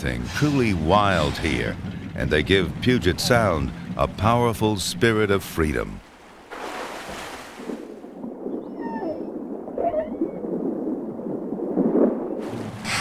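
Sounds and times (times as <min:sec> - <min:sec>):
rushing water noise: 0:00.0 - 0:08.0, 0:12.4 - 0:13.0
killer whales squealing underwater: 0:08.7 - 0:10.4.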